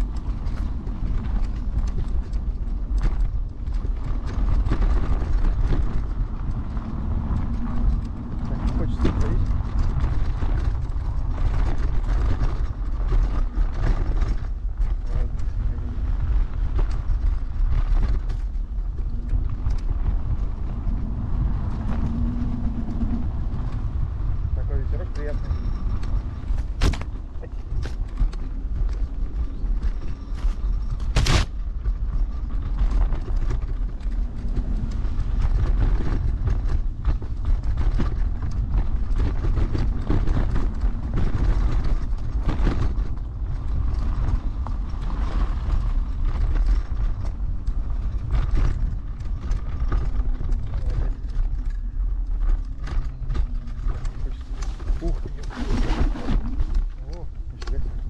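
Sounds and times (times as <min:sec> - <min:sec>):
low rumble on microphone: 0:00.0 - 0:58.0
scooter knocking and rattling: 0:00.0 - 0:58.0.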